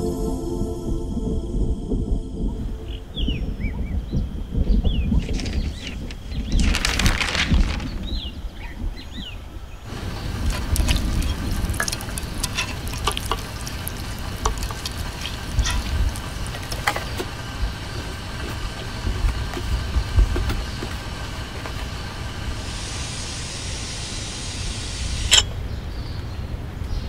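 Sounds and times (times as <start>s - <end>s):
birds chirping: 2.4s - 6.8s, 7.8s - 22.4s
steady hiss: 9.7s - 26.4s
utensils and containers clinking: 10.1s - 17.3s.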